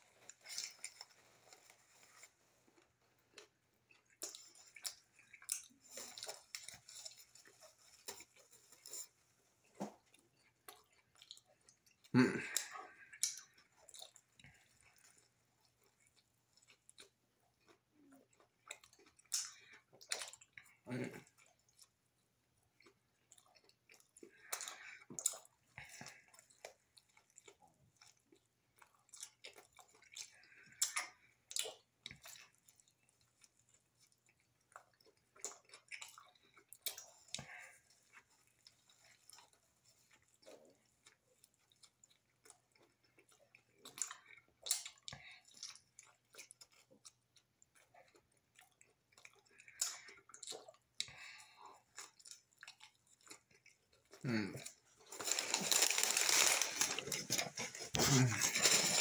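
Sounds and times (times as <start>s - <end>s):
person biting and chewing: 33.4s - 59.0s.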